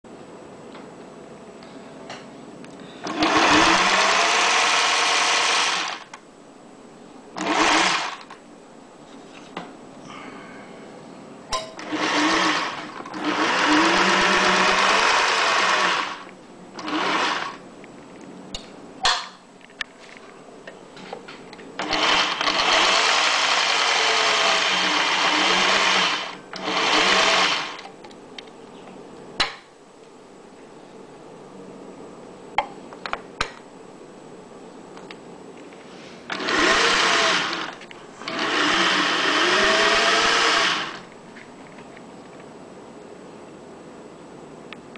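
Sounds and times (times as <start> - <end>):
sewing machine running: 3.0 - 6.1, 7.4 - 8.4, 11.8 - 17.6, 21.8 - 27.8, 36.3 - 41.0.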